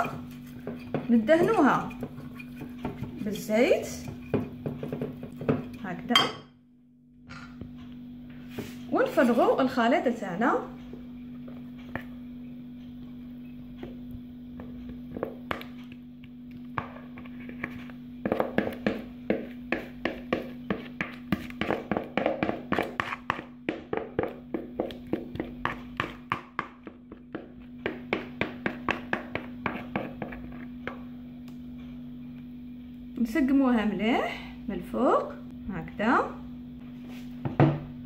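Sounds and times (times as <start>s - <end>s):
wooden spoon tapping a bowl: 0.0s - 6.5s, 16.7s - 31.0s
steady low hum: 0.0s - 38.0s.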